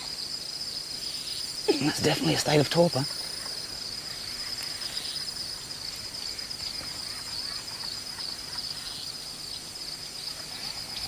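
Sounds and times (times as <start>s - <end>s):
night insects chorus: 0.0s - 11.0s
faint ticks and rustles: 2.0s - 9.0s.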